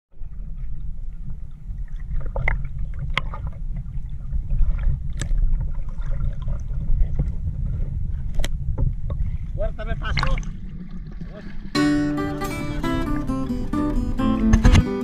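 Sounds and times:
muffled underwater rumble: 0.1 - 14.9
sharp clicks and knocks: 14.4 - 14.9.

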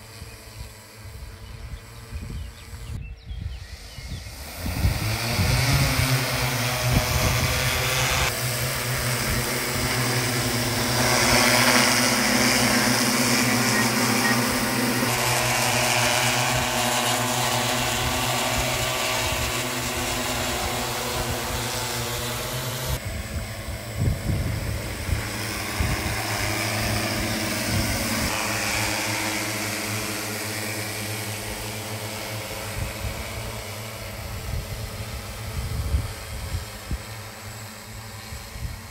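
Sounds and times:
drone propellers humming: 0.0 - 38.9.

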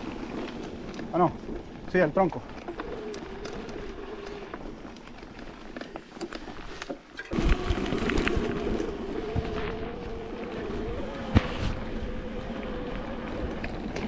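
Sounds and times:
tyre noise: 0.0 - 14.0
electric bike motor whine: 2.5 - 14.0
wind rumbling on microphone: 6.4 - 14.0.

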